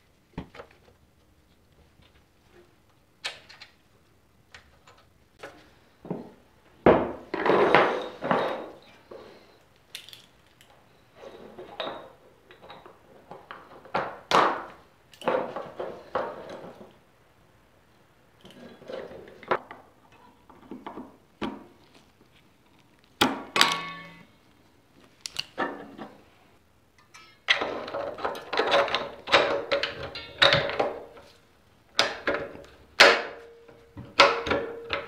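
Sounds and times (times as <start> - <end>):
small metal parts clanking: 9.9 - 10.8, 27.0 - 31.2.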